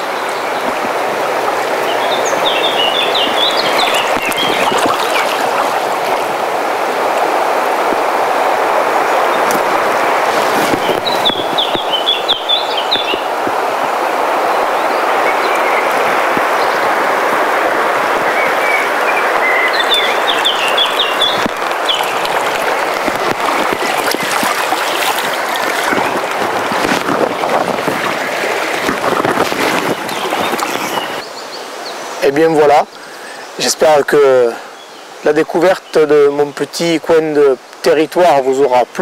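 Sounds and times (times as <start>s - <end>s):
river rushing over stones: 0.0s - 35.3s
bird chirping: 1.9s - 6.2s, 10.8s - 13.3s, 18.4s - 22.3s.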